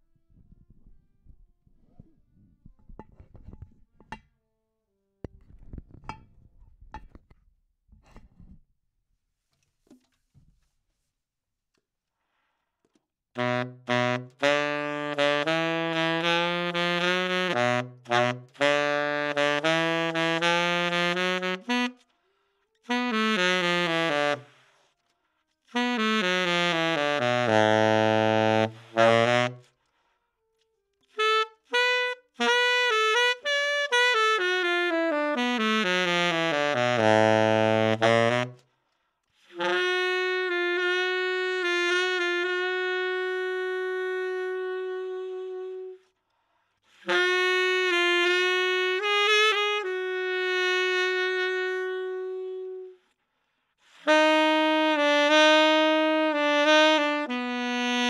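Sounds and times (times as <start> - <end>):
solo tenor saxophone: 13.4 - 25.0, 25.6 - 30.1, 31.0 - 46.2, 46.8 - 53.2, 53.8 - 58.0.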